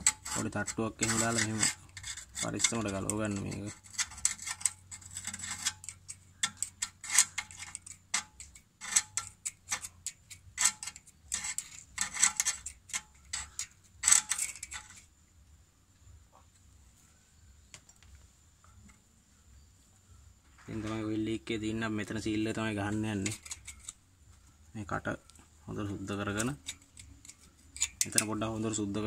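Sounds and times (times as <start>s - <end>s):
screwdriver scraping and tapping metal: 0.0s - 15.1s, 21.7s - 24.0s, 25.3s - 29.0s.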